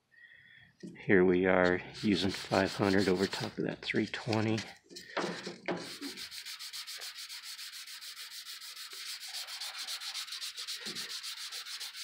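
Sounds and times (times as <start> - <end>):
sandpaper rubbing back and forth: 1.9 - 4.7, 5.3 - 12.0.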